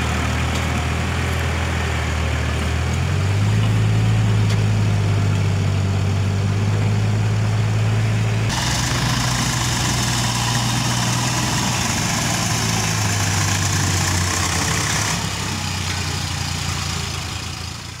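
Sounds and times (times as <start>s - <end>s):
diesel tractor engines droning: 0.0s - 18.0s
hiss: 8.5s - 13.6s.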